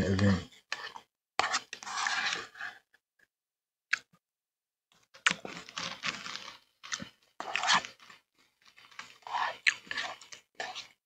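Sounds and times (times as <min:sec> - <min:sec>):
crunching and chewing cereal: 0:04.9 - 0:11.0.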